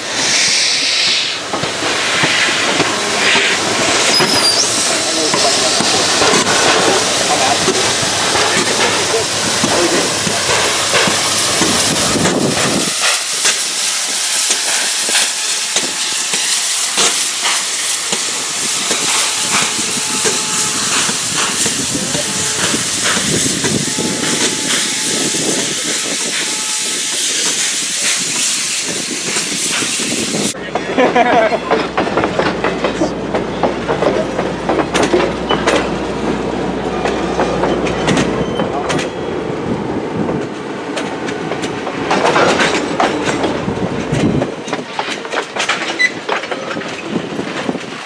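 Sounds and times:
steam hiss: 0.0 - 30.6
steam locomotive exhaust chuffs: 0.0 - 39.4.

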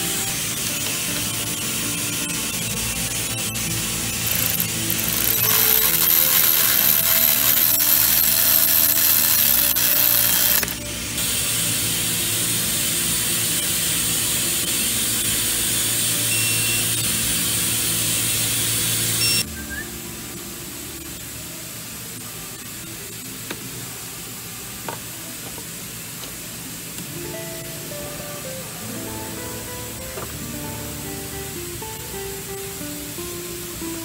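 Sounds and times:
electric ratchet running: 2.9 - 19.4
small clicks: 4.3 - 10.8.

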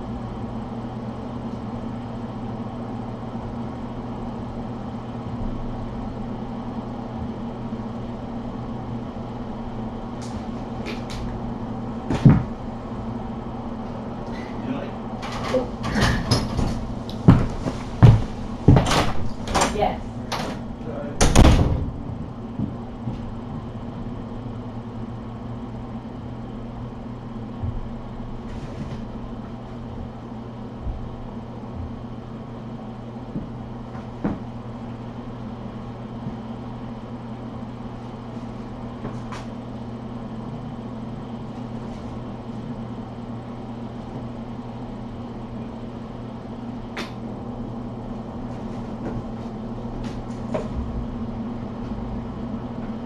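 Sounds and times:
appliance electrical hum: 0.0 - 53.0.

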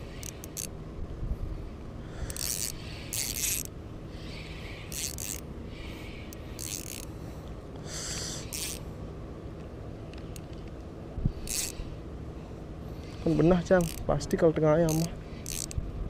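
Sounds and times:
fishing reel whirring: 0.0 - 0.7, 2.0 - 7.2, 7.8 - 8.8, 11.4 - 12.0, 13.0 - 15.8.

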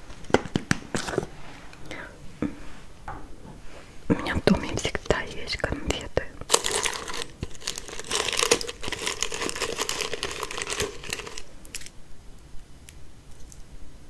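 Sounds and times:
candy wrappers crinkling: 6.4 - 12.0.

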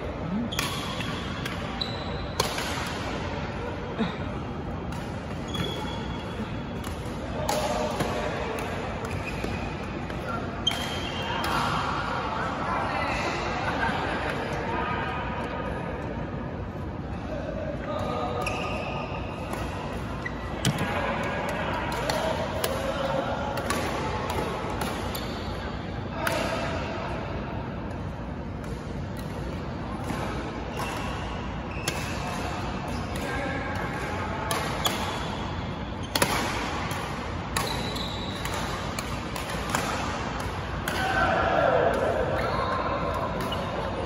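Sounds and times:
rackets hitting shuttlecock: 0.5 - 3.3, 4.8 - 11.9, 19.4 - 25.6, 28.6 - 44.0.

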